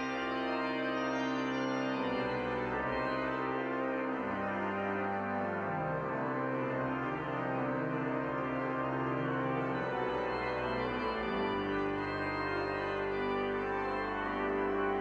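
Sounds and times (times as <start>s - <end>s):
organ playing slow chords: 4.1s - 15.0s.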